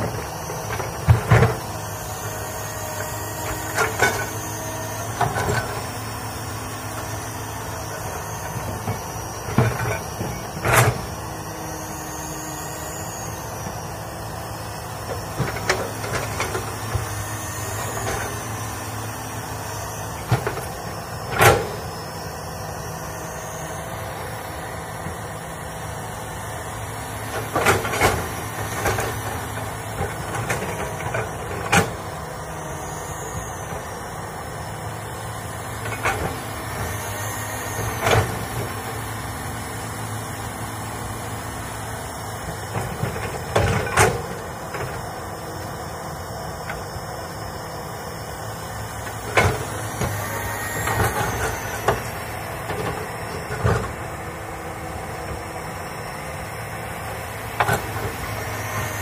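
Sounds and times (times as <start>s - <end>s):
excavator diesel engine running: 0.0s - 59.0s
faint high whine: 0.0s - 59.0s.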